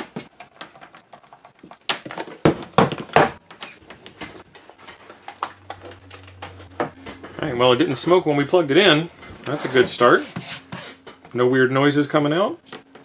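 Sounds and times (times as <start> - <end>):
low steady hum: 3.1 - 13.0.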